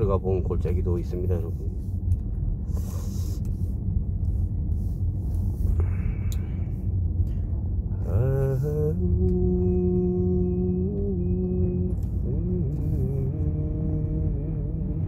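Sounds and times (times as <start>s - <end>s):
car engine and tyres rumbling: 0.0s - 15.0s
person humming: 8.0s - 15.0s.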